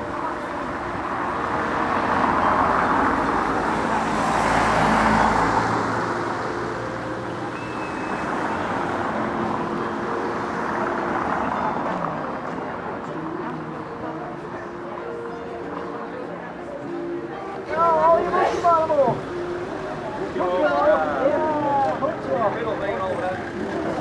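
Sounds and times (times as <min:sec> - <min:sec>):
vehicle passing by: 0:01.4 - 0:12.3.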